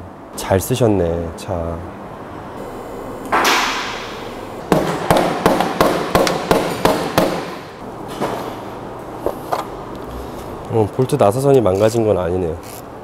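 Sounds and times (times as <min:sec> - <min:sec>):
mallet knocking plastic cover: 0:04.7 - 0:07.6.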